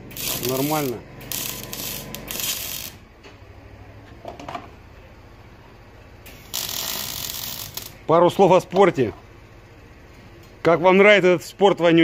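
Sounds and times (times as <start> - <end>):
welding arc crackling: 0.0 - 3.1, 6.3 - 8.0.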